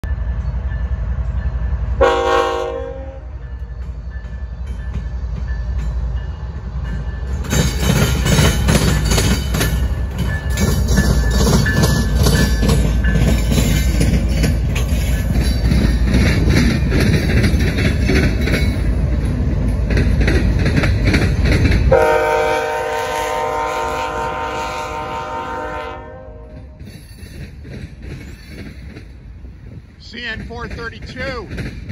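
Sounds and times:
diesel locomotives rumbling: 0.0s - 31.9s
train horn blast: 2.0s - 3.4s, 21.9s - 26.8s
wheels clicking over rails: 6.9s - 22.0s, 26.6s - 31.9s.

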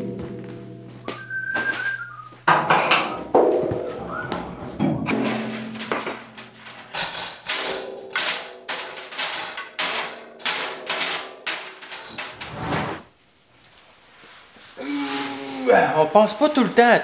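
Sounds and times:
metal knocks and clatters: 0.0s - 12.6s.

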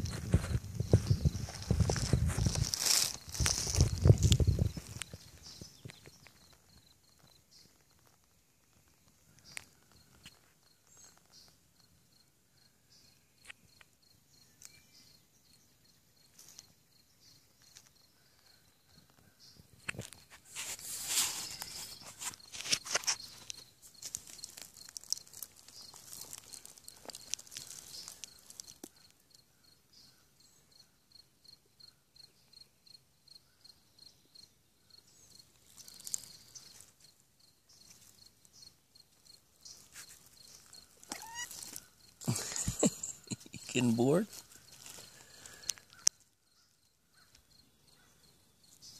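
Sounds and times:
rustling in dry leaves: 0.0s - 6.7s, 20.1s - 29.1s, 35.2s - 47.3s
insect chirping: 0.0s - 48.9s.

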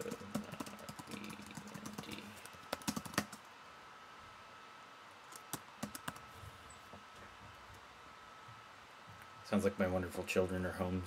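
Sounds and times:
keyboard keystrokes: 0.0s - 3.4s
faint steady hum: 0.0s - 11.0s.

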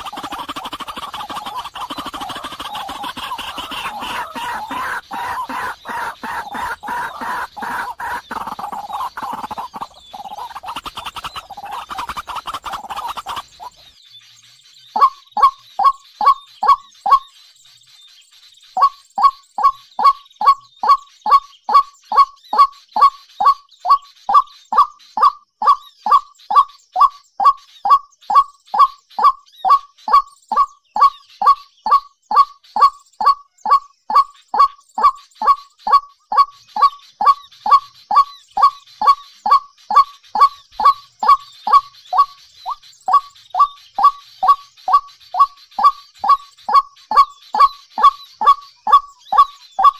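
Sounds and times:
waterhen calling: 0.0s - 13.9s, 15.0s - 17.2s, 18.8s - 49.9s.

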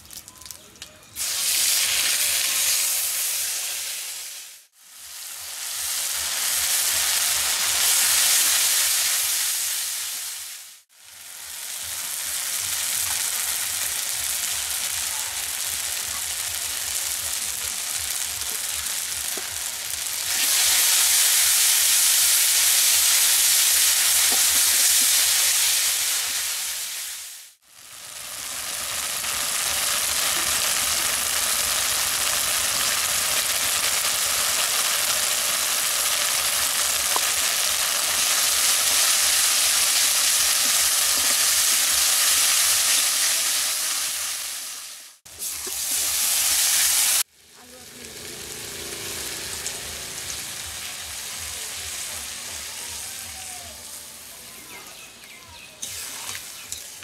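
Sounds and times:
paste sizzling in oil: 1.2s - 57.0s.

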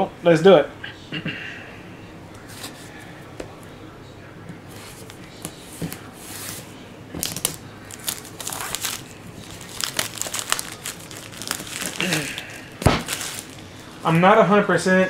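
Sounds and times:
plastic shrink-wrap crinkling and tearing: 7.2s - 14.2s.

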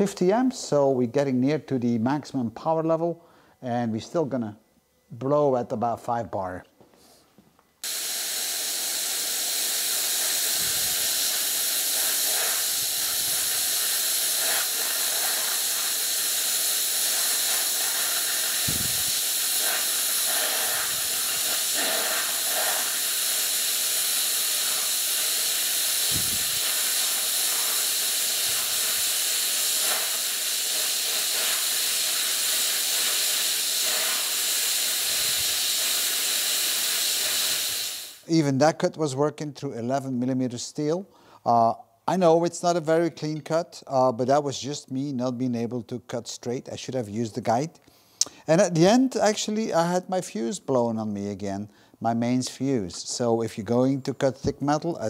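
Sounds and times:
plasma cutter hissing: 7.8s - 38.3s.

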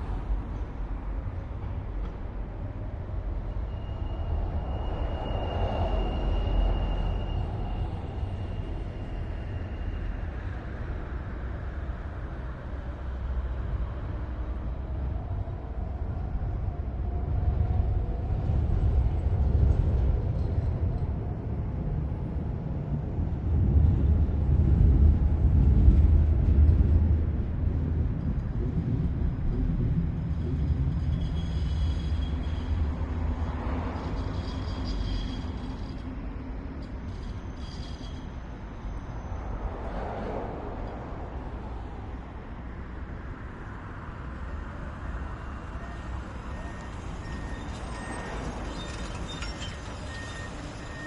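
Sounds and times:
distant city rumble: 0.0s - 51.0s
faint high squealing tones: 3.5s - 10.9s, 30.4s - 39.9s, 45.3s - 51.0s.

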